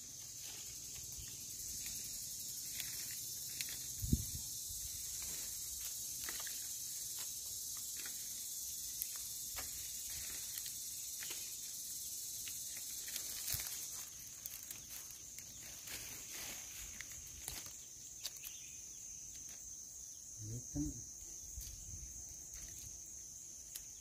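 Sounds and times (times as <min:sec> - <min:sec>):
insect buzz: 0:00.0 - 0:24.0
twigs and leaves snapping: 0:00.4 - 0:04.2, 0:05.1 - 0:08.2, 0:12.3 - 0:18.6, 0:23.6 - 0:24.0.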